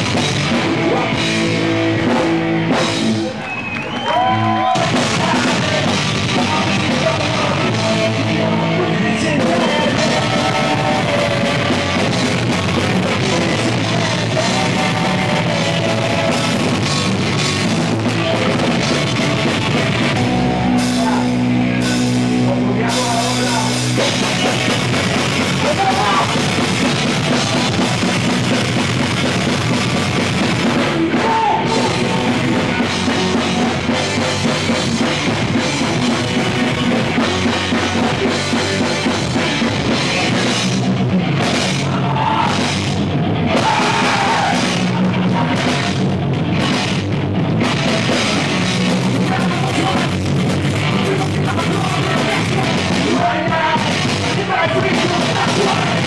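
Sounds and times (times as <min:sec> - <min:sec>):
punk rock band playing: 0:00.0 - 0:56.0.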